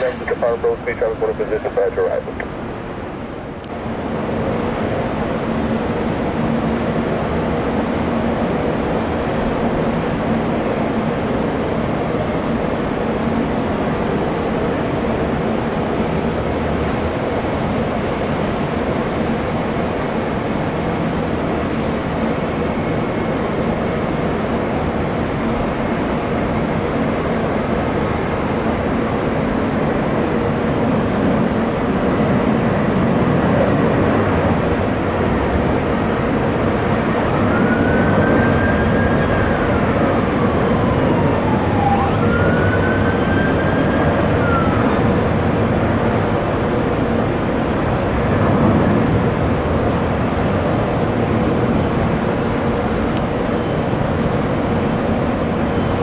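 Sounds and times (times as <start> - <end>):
jet engines running: 0.0 - 56.0
siren wailing: 37.0 - 45.8.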